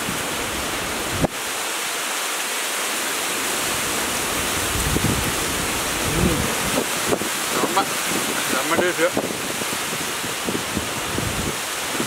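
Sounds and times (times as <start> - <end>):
strong wind blowing: 4.2 - 12.0
wind buffeting microphone: 4.3 - 12.0.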